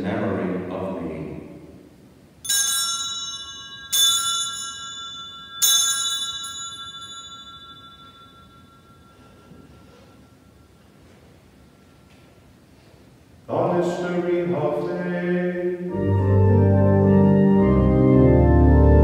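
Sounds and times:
bell ringing: 2.4s - 12.1s.

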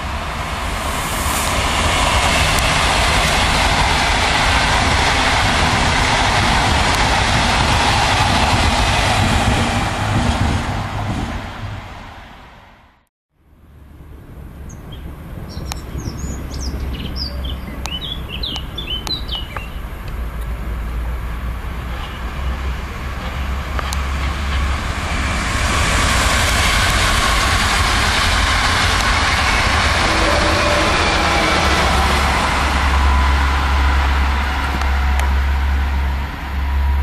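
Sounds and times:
low hum: 0.0s - 4.1s
electric train passing: 0.0s - 37.0s
birds chirping: 14.7s - 20.1s.

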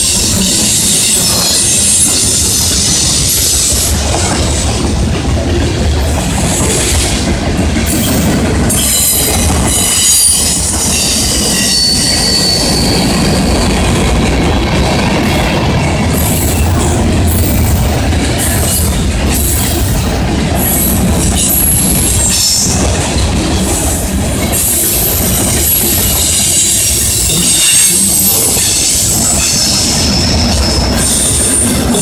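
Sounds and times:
freight train wheels rumbling: 0.0s - 32.0s
high-pitched wheel squeal: 7.9s - 13.8s, 24.6s - 32.0s.

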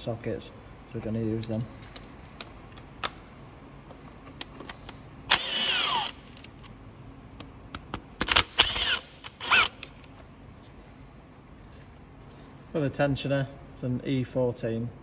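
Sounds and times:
cordless ratchet whining: 5.3s - 6.5s, 8.2s - 10.1s.

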